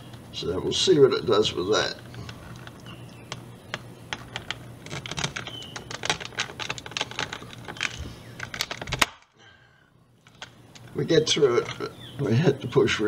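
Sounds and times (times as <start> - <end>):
wood crackling under blade: 1.7 - 9.4, 10.2 - 12.2
wood strip snapping: 2.2 - 9.3.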